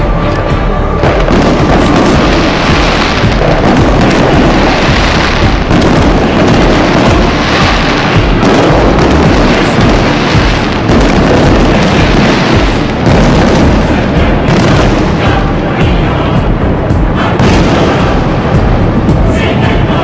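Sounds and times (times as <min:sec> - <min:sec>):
fireworks booms and crackle: 0:00.0 - 0:20.0.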